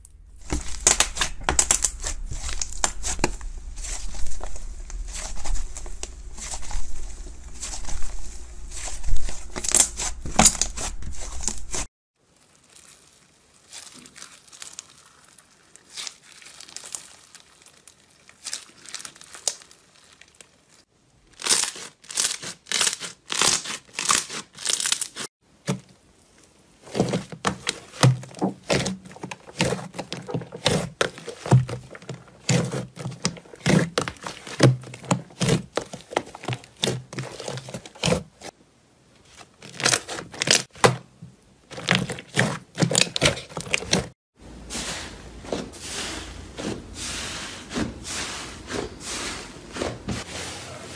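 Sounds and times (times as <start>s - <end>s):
slime squelching: 0.0s - 38.6s, 39.2s - 44.2s
slime crackling and popping: 12.2s - 25.3s.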